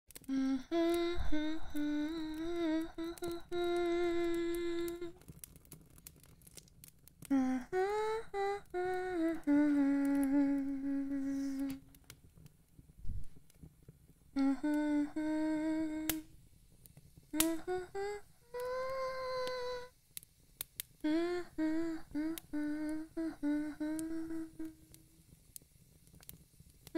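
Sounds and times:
woman humming a slow tune: 0:00.2 - 0:05.2, 0:07.2 - 0:11.9, 0:14.4 - 0:16.4, 0:17.3 - 0:19.9, 0:21.0 - 0:25.2
faint clicks: 0:15.6 - 0:17.8.

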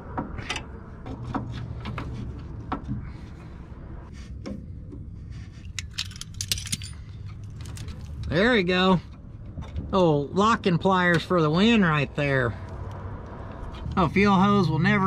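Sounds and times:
metal hand tools clinking: 0:05.7 - 0:08.4.

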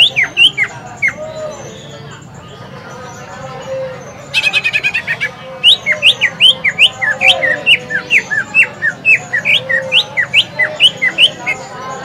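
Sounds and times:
bird singing sharp whistled notes: 0:00.0 - 0:02.1, 0:04.3 - 0:11.8.

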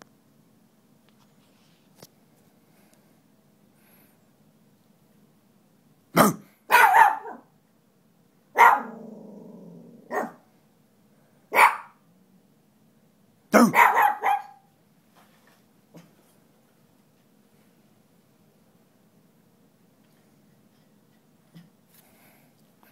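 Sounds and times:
dogs barking: 0:06.2 - 0:07.5, 0:08.6 - 0:09.1, 0:10.1 - 0:10.5, 0:11.5 - 0:12.0, 0:13.6 - 0:14.7
dog growling: 0:08.7 - 0:10.4.

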